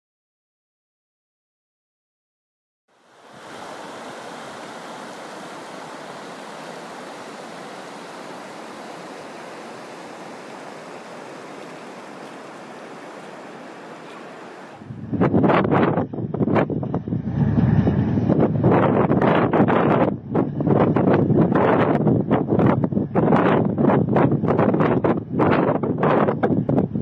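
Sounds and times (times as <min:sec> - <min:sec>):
floodwater rushing: 0:02.9 - 0:15.3.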